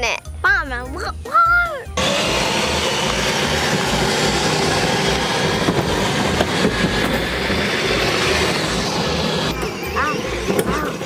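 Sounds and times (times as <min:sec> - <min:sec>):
toy truck motor whirring: 0:02.0 - 0:11.0
plastic wheels rolling on concrete: 0:03.0 - 0:09.6.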